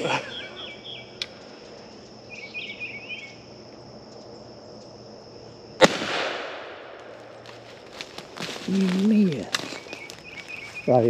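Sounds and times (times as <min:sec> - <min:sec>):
bird chirps: 0:00.0 - 0:03.5, 0:09.6 - 0:11.0
insects buzzing: 0:00.0 - 0:11.0
gunshot echoing: 0:05.8 - 0:07.2.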